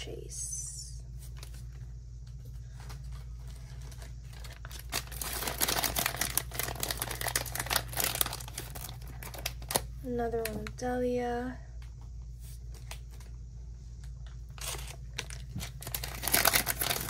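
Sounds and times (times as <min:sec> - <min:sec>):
foil bag crinkling and tearing: 0:02.7 - 0:10.7, 0:14.2 - 0:17.0.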